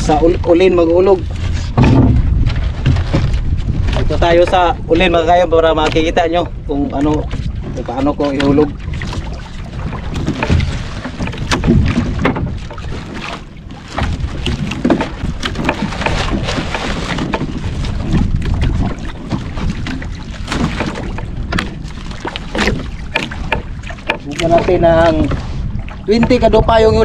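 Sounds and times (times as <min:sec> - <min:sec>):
water slapping against hull: 0:00.0 - 0:27.0
wind buffeting microphone: 0:00.0 - 0:27.0
fishing gear knocks and rattles: 0:10.1 - 0:13.3, 0:13.9 - 0:24.9.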